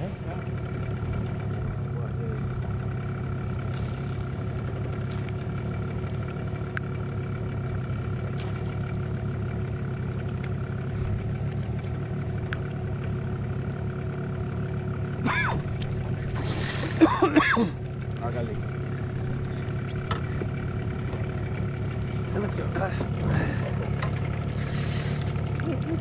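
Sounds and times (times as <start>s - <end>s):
outboard motor running: 0.0s - 26.0s
person crying out: 15.2s - 15.6s.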